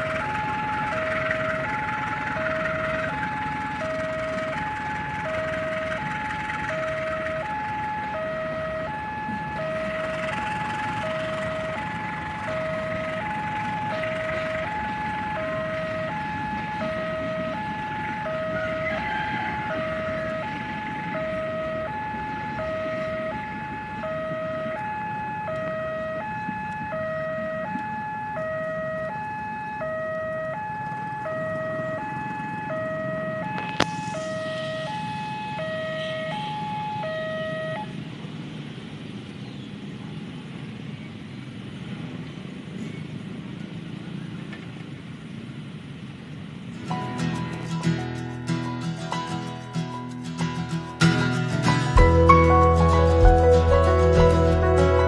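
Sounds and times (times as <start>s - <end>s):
passing train rumble: 0.0s - 29.8s, 46.4s - 55.0s
two-tone crossing alarm chime: 0.0s - 38.0s.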